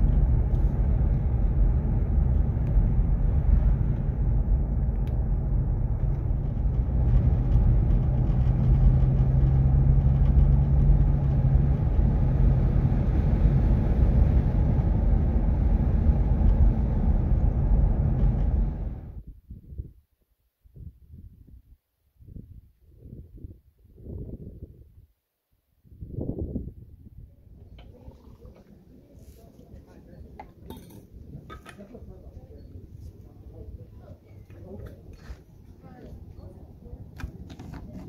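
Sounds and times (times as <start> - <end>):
road and engine rumble: 0.0 - 19.2, 27.1 - 38.0
low hum: 0.0 - 19.4.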